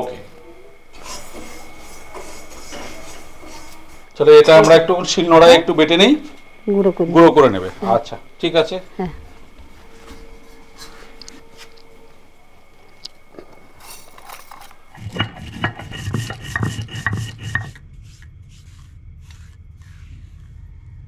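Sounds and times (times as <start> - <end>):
stone grinding scrapes: 13.8 - 20.1
stone knocking: 14.9 - 17.8.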